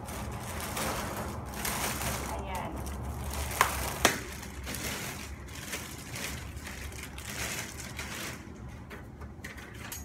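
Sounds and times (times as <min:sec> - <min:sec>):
plastic wrapping crinkling: 0:00.0 - 0:09.0.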